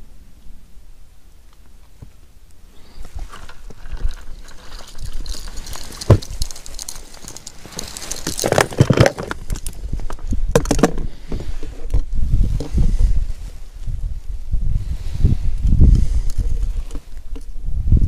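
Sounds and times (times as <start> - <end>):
fishing tackle rustling and clicking: 3.0 - 12.8, 15.6 - 17.6.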